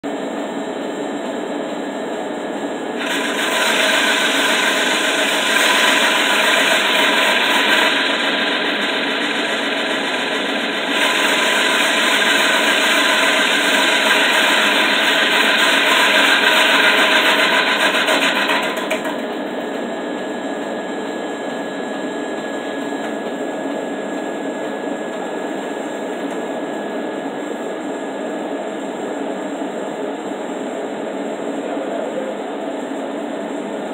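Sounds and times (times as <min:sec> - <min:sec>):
wood lathe droning: 0:03.0 - 0:19.6.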